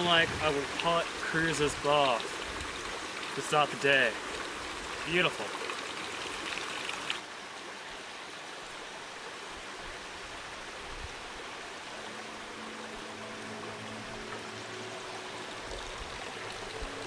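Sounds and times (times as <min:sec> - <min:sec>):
water trickling over rocks: 0:00.0 - 0:17.0
background music tones: 0:11.6 - 0:17.0.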